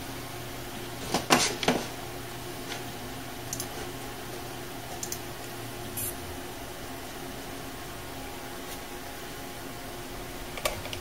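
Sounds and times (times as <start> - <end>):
computer fans humming: 0.0 - 11.0
sharp clicks: 5.0 - 5.2.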